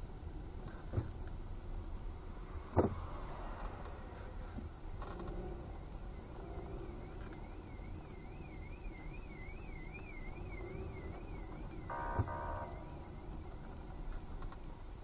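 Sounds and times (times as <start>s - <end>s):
car road and engine rumble: 0.0s - 15.0s
faint warbling siren-like tone: 2.6s - 14.2s
car horn: 11.8s - 12.9s.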